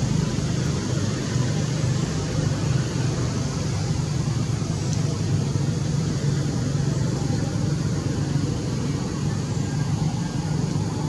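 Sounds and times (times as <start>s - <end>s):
constant hiss: 0.0s - 11.0s
vehicle engines rumbling: 0.0s - 11.0s.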